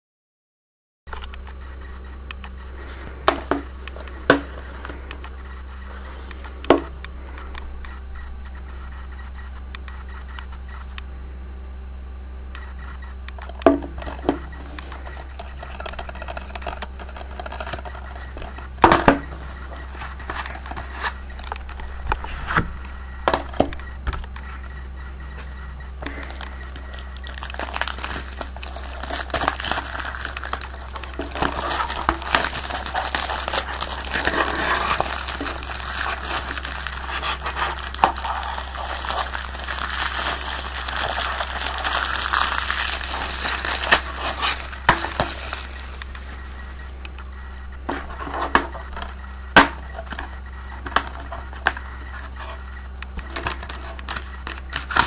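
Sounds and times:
plastic shrink-wrap crinkling: 19.3s - 21.8s, 26.0s - 46.5s, 53.4s - 55.0s.

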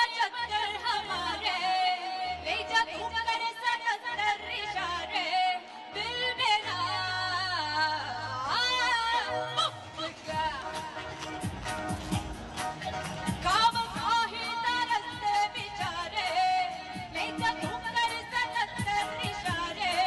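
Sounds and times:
woman singing into a microphone: 0.0s - 11.4s, 13.3s - 20.0s
live band playing: 8.5s - 20.0s.

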